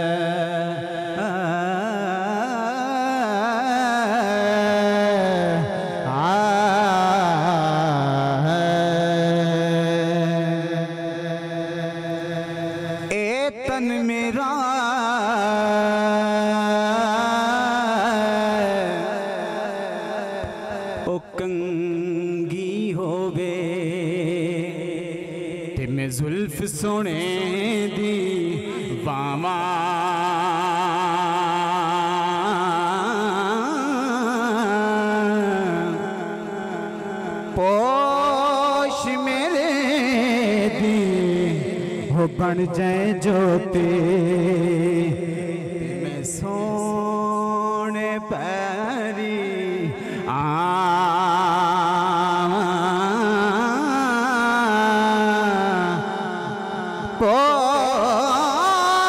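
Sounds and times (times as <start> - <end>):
man singing melismatic phrases: 25.8 - 59.0.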